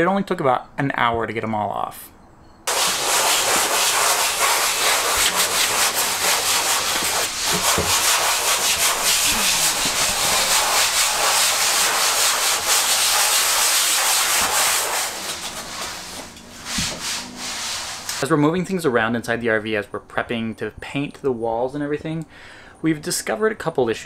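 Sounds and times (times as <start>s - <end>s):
sanding block rasping: 2.7s - 18.3s.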